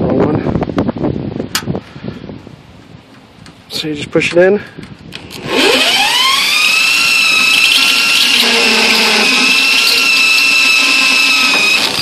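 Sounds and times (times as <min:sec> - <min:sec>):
power drill drilling steel: 0:05.2 - 0:12.0.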